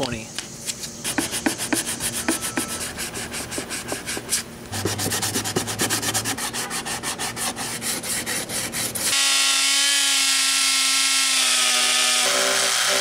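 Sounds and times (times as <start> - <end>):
sandpaper scraping on plastic: 1.0 - 9.2.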